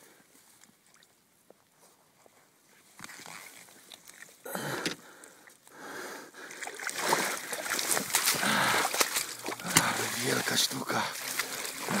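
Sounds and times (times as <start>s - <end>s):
water splashing: 6.4s - 12.0s.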